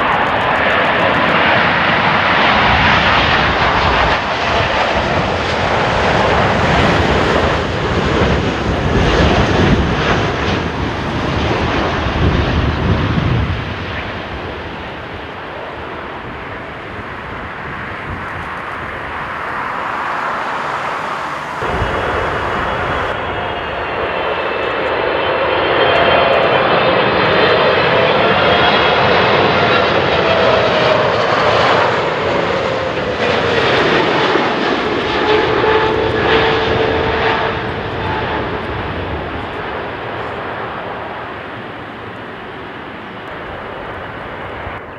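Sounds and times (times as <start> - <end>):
jet airliner engines roaring: 0.0 - 44.9
jet engine whine: 0.0 - 44.9.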